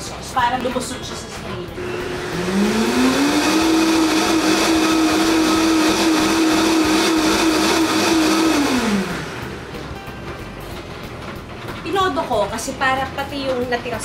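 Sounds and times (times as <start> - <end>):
blender motor running: 1.8 - 9.8.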